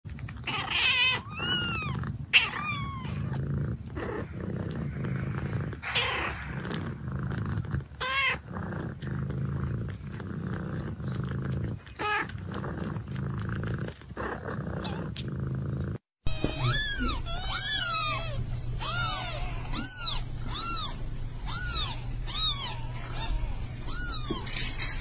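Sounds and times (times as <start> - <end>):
cat purring: 0.1 - 25.0
cat trilling meows: 0.5 - 3.2, 8.0 - 8.4, 16.3 - 24.6.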